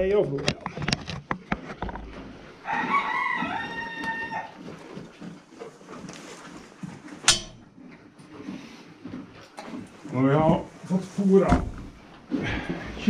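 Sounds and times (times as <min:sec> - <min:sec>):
rooster crowing: 0:02.6 - 0:04.6
sharp clack: 0:07.3 - 0:07.7.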